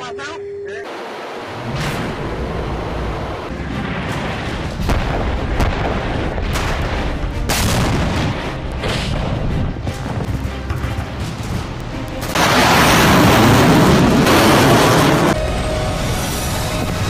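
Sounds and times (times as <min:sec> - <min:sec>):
music: 0:03.5 - 0:17.0
explosion booms: 0:03.8 - 0:09.7.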